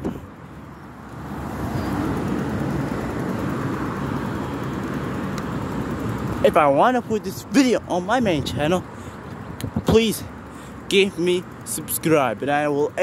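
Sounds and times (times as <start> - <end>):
wind rushing over microphone: 8.0 - 8.8, 9.4 - 10.1.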